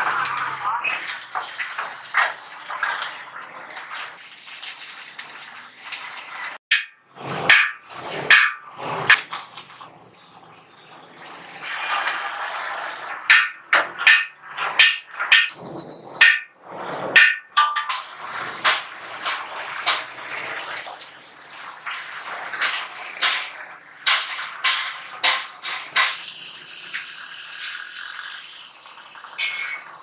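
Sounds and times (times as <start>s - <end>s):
hand tools knocking on sheet metal: 13.2s - 15.6s, 17.2s - 20.1s, 22.6s - 26.2s.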